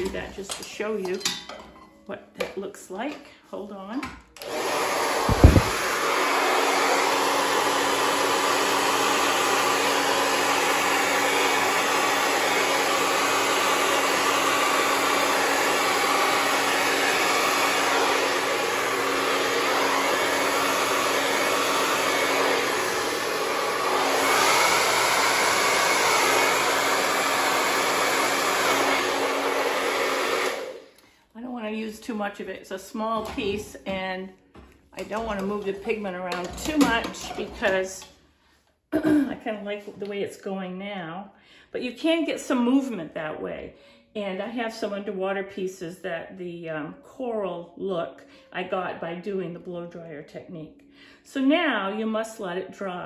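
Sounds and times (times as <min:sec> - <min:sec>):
hair dryer running: 0:04.4 - 0:31.0, 0:35.0 - 0:37.9.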